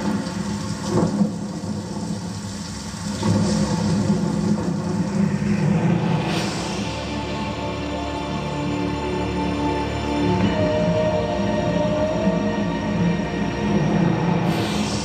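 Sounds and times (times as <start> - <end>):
whoosh: 0.0 - 8.0, 14.2 - 15.0
heavy low rumble and drone: 0.0 - 15.0.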